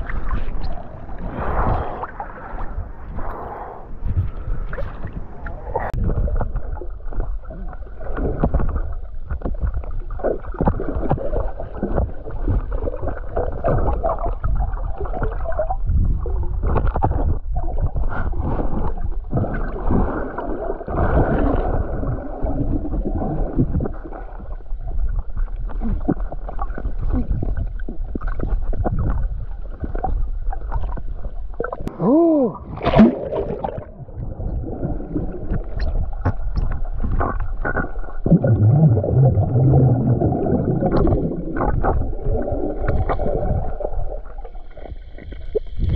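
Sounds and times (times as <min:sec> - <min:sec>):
muffled underwater rumble: 0:00.0 - 0:45.9
splash: 0:32.7 - 0:45.9.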